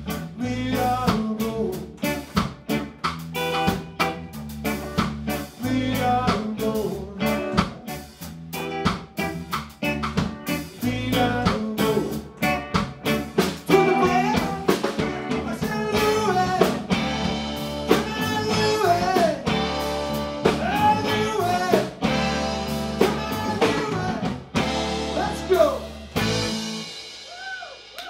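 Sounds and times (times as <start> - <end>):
drum kit beat: 0.0 - 28.0
electric bass: 0.0 - 28.0
electric guitars: 0.0 - 28.0.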